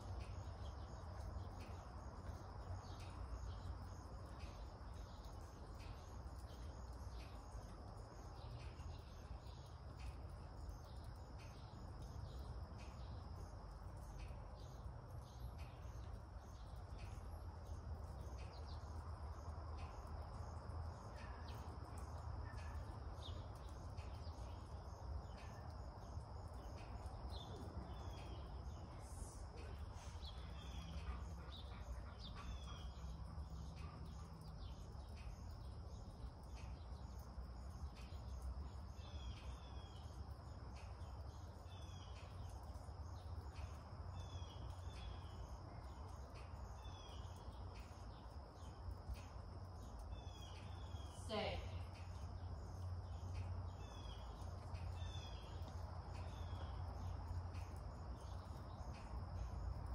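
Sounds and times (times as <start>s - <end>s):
faint bird chirps: 20.9s - 59.9s.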